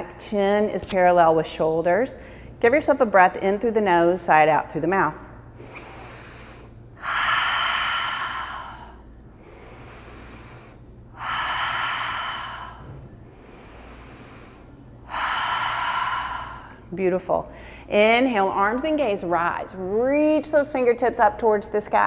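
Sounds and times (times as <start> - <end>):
woman inhaling through nose: 5.6 - 16.9.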